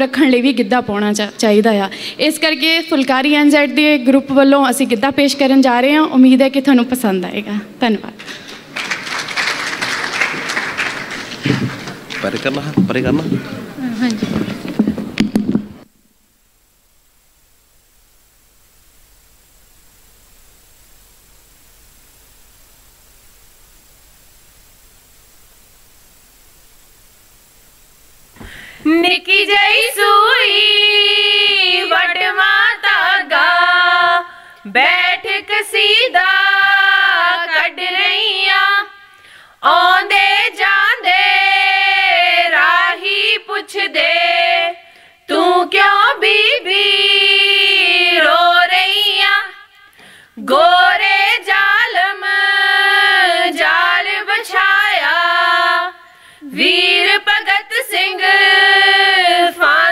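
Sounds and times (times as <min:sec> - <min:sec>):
women singing without instruments: 0:28.8 - 0:49.8, 0:50.4 - 0:59.9.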